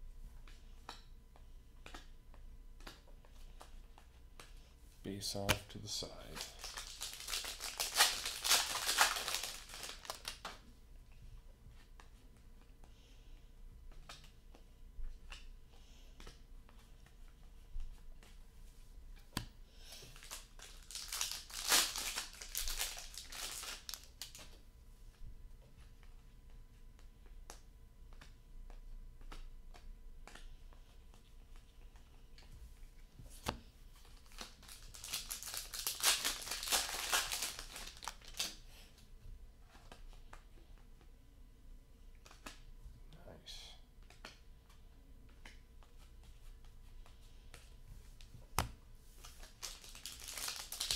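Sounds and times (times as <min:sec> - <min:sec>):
foil wrappers crinkling and tearing: 0:06.2 - 0:10.5, 0:20.0 - 0:24.4, 0:34.0 - 0:38.6, 0:49.2 - 0:50.9.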